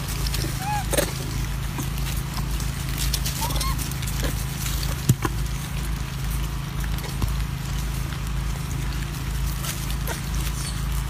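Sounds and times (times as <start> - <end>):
small clicks and rustles: 0.0 - 11.0.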